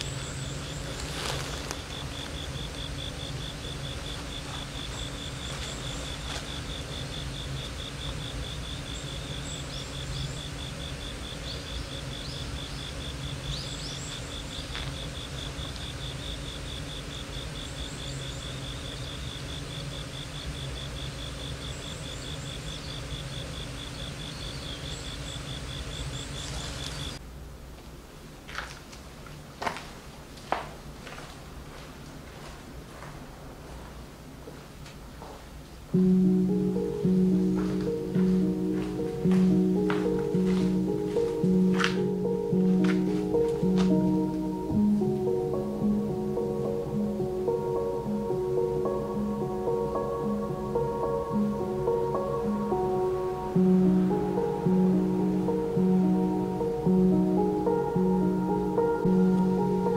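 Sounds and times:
faint bird chirps: 0:00.0 - 0:27.2
insect chirping: 0:00.0 - 0:27.2, 0:35.9 - 0:59.9
low background hum: 0:00.0 - 0:59.9.

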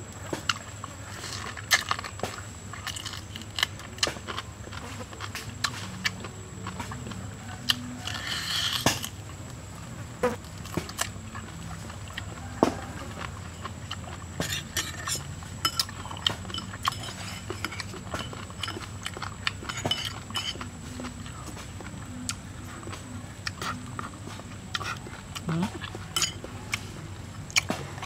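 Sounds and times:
crunchy chewing: 0:00.0 - 0:28.0
spoon clinking against bowl: 0:26.2 - 0:26.4.

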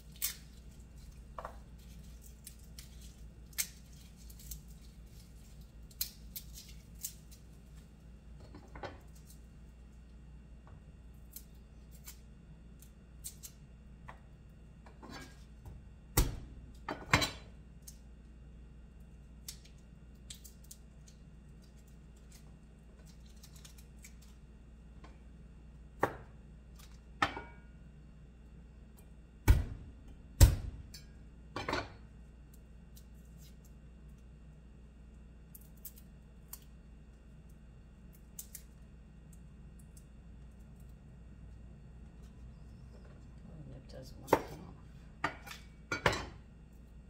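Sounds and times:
garlic skins crackling: 0:00.0 - 0:08.0
steady low hum: 0:00.0 - 0:47.0.

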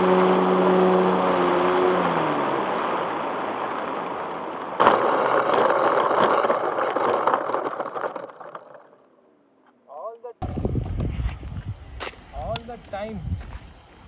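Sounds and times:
model plane motor winding down: 0:00.0 - 0:04.2
plane rattling over rough ground: 0:00.0 - 0:09.1.

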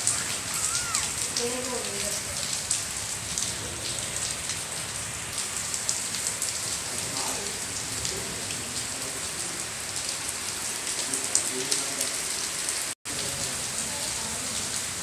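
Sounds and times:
raindrops ticking: 0:00.0 - 0:04.6
steady rain: 0:00.0 - 0:15.0.

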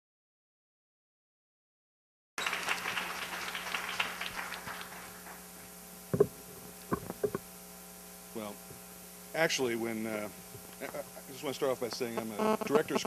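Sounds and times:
audience applause: 0:02.4 - 0:05.5
sound system mains hum: 0:02.4 - 0:13.0.

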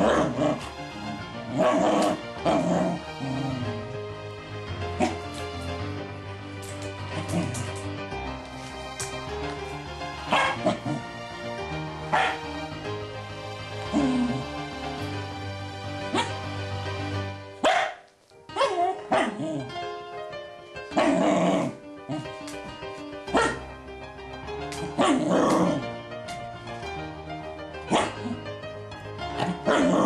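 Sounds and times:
background music: 0:00.0 - 0:30.0
dogs barking: 0:04.9 - 0:05.5, 0:10.2 - 0:11.2, 0:12.1 - 0:12.6, 0:16.1 - 0:16.5, 0:17.6 - 0:19.7, 0:23.3 - 0:23.7, 0:24.8 - 0:25.8, 0:27.9 - 0:28.4, 0:29.3 - 0:30.0.

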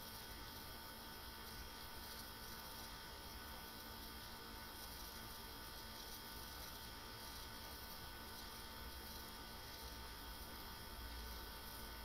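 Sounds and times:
faint steady hum: 0:00.0 - 0:12.0
light hiss: 0:00.0 - 0:12.0.

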